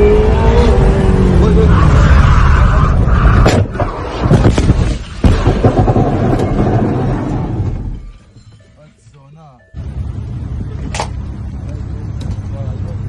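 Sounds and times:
car engine noise: 0.0s - 8.0s, 9.8s - 13.0s
car crash impacts and crunching: 3.4s - 6.8s.

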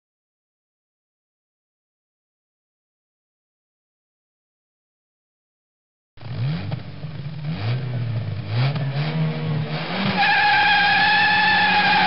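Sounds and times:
car engine revving: 6.2s - 12.0s.

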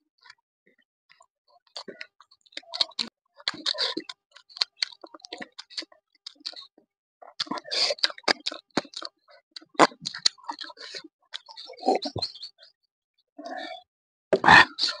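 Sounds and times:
chewing and lip smacking: 1.7s - 12.2s.

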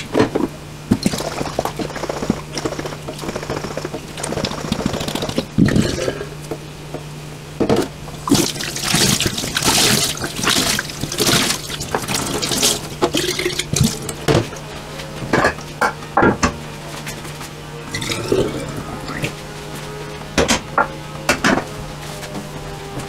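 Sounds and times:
water splashing in a steel sink: 8.2s - 14.2s.

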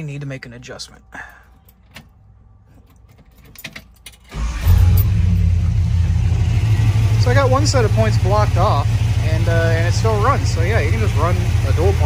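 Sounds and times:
car engine cranking and running: 2.8s - 12.0s.

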